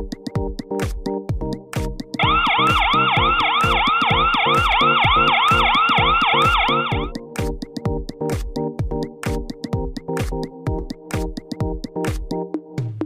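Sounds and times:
electronic dance music: 1.8 - 8.5
warbling siren: 2.2 - 7.1.

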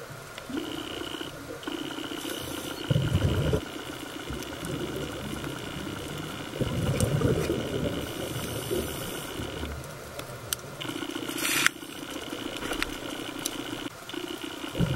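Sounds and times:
steady high whine: 0.0 - 14.9
low bubbling rumble underwater: 2.9 - 10.1.

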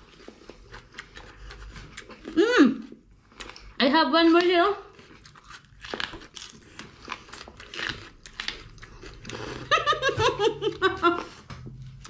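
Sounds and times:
crunchy biting and chewing: 0.0 - 2.4, 4.9 - 9.9.

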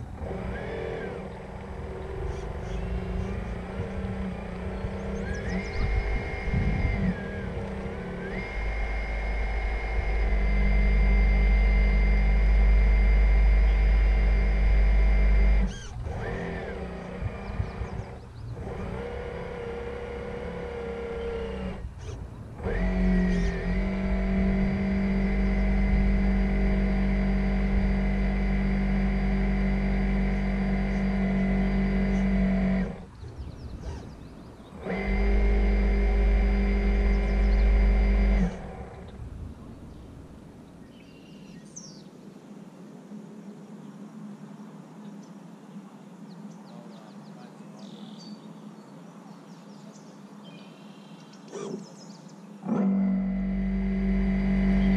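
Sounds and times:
electric motor whining: 0.0 - 39.5, 52.6 - 54.9.

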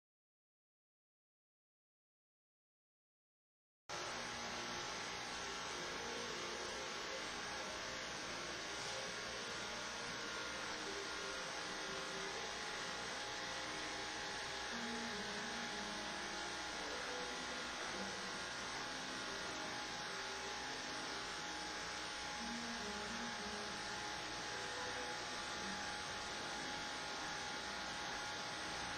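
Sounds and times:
electrical hum with hiss: 3.9 - 28.9.

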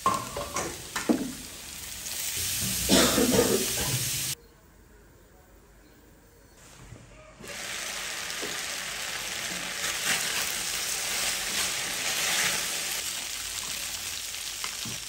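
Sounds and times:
food sizzling in hot oil: 0.0 - 4.4, 7.4 - 15.0.

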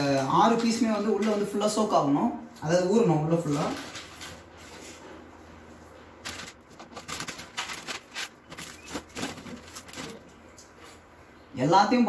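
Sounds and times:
plastic packet crinkling: 6.2 - 10.6.

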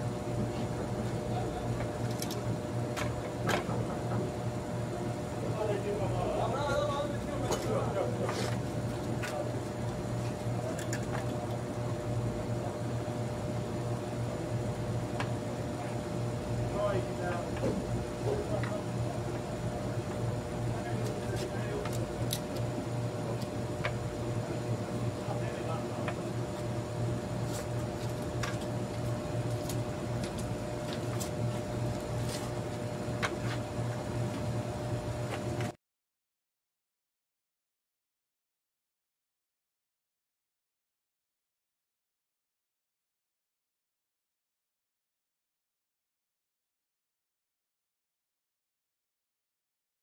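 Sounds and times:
steady machine hum: 0.0 - 35.8.

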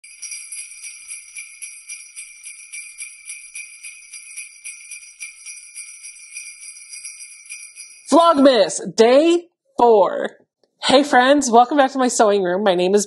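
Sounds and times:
jingle bells shaken: 0.0 - 8.5.

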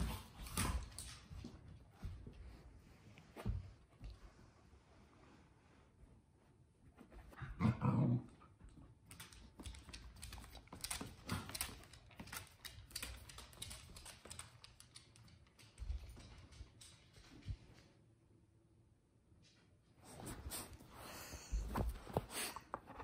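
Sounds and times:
dog claws clicking on hardwood: 9.1 - 17.5.

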